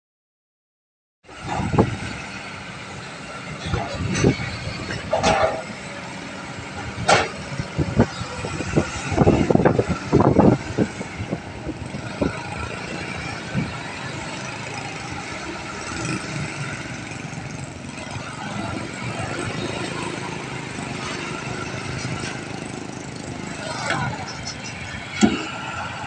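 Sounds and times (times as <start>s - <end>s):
sharp knocks and clatter: 7.0s - 7.7s, 24.2s - 25.7s.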